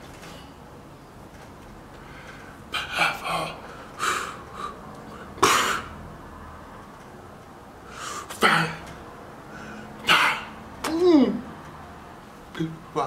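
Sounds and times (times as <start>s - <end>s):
man's breathy wordless vocal bursts: 2.1s - 5.4s.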